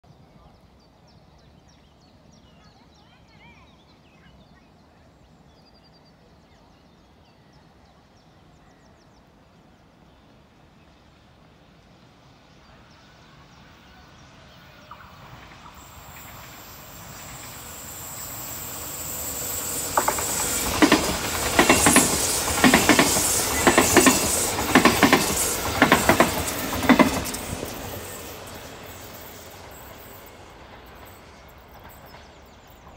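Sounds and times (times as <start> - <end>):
electric train running noise: 14.9 - 32.9
wheels clacking over rail joints: 19.6 - 28.5.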